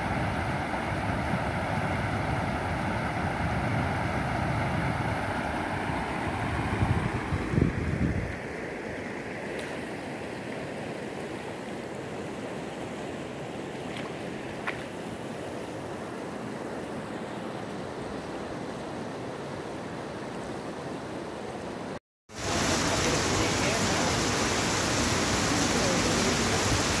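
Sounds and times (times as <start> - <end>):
flowing floodwater: 0.0 - 27.0
wind: 0.0 - 27.0
heavy rain on pavement: 22.3 - 27.0.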